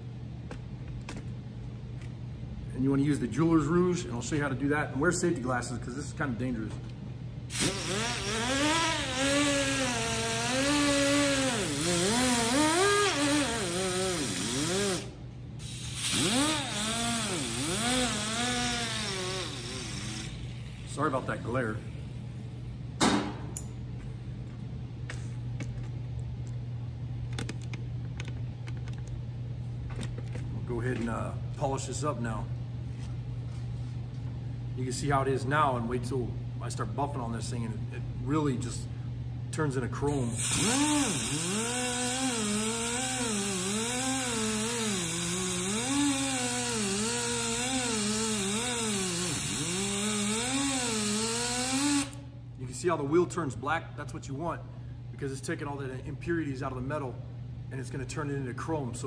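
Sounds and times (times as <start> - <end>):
steady low hum: 0.0 - 59.0
die grinder whine: 7.5 - 15.1, 15.7 - 20.5, 40.3 - 52.2.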